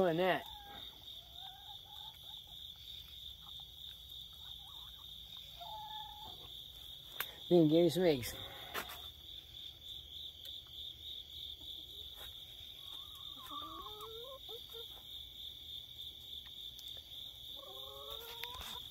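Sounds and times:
crickets chirping: 0:00.0 - 0:18.9
hens warbling calls: 0:04.5 - 0:06.5, 0:12.8 - 0:14.9.

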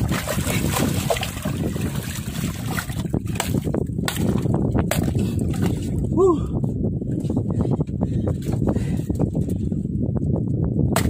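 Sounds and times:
water sloshing against boat: 0:00.0 - 0:06.0
wind rumble on microphone: 0:00.0 - 0:11.0.

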